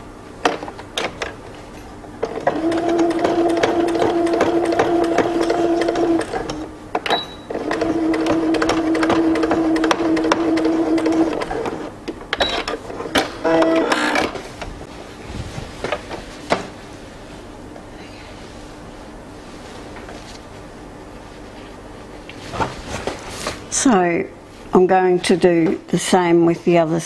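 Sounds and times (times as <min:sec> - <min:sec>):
sewing machine stitching: 0:02.2 - 0:06.7, 0:07.5 - 0:11.9
sewing machine beep: 0:07.1 - 0:07.6.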